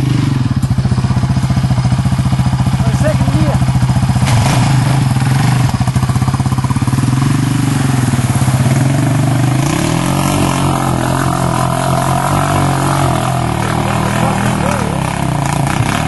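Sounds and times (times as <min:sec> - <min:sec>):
quad bike engine idling and revving: 0:00.0 - 0:16.0
splashing water: 0:07.1 - 0:16.0.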